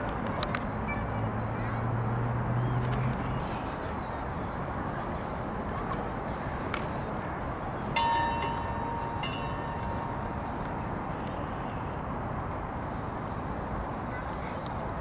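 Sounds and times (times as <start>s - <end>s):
outdoor background noise: 0.0s - 15.0s
bell ringing: 8.0s - 10.6s.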